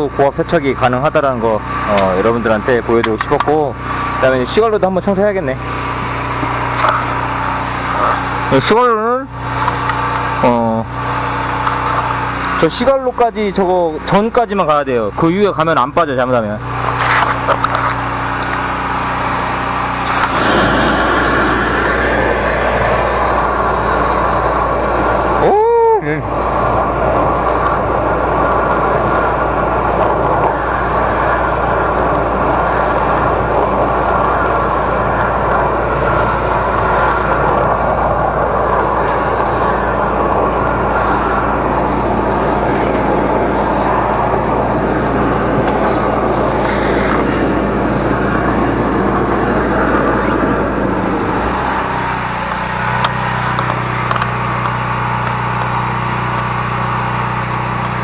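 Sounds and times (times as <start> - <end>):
engine humming: 0.0 - 58.0
high-pressure water rushing: 19.1 - 58.0.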